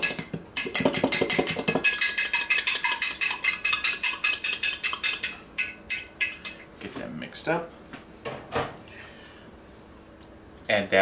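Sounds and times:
fork beating egg in glass cup: 0.0s - 6.7s.

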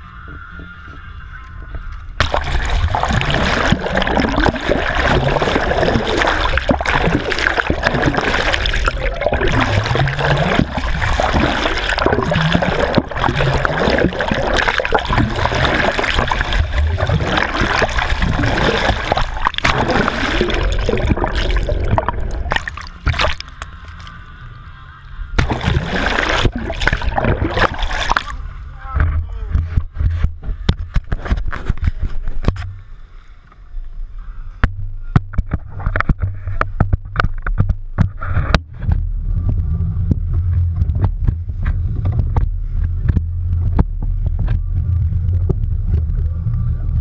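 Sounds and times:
underwater bubbling gurgles: 2.1s - 28.7s
sea water rushing and splashing: 2.2s - 24.1s, 25.4s - 28.5s.

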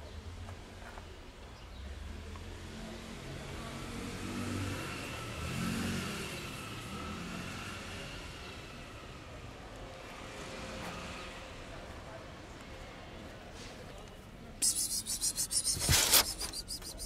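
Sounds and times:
motor vehicle passing: 2.4s - 9.2s.

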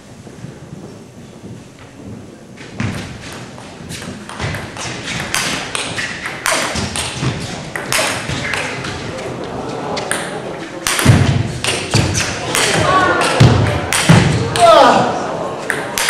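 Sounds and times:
table tennis ball clicking: 4.3s - 8.7s, 10.0s - 14.7s, 15.6s - 16.0s.

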